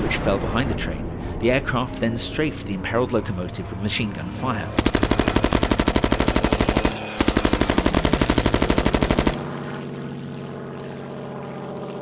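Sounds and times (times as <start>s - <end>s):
propeller aircraft engine drone: 0.0s - 12.0s
machine gun fire: 4.8s - 9.6s.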